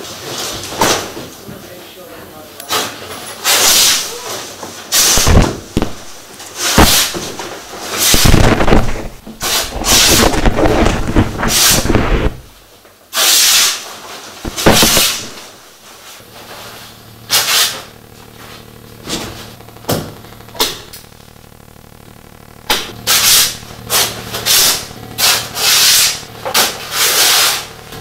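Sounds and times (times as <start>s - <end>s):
cloth rustling and flapping: 8.0s - 12.6s.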